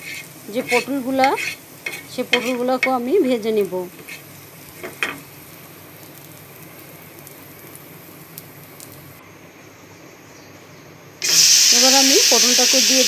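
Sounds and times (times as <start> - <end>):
spatula scraping pan: 0.0 - 3.1, 4.0 - 5.0
oil sizzling in frying pan: 0.0 - 9.2, 11.2 - 13.0.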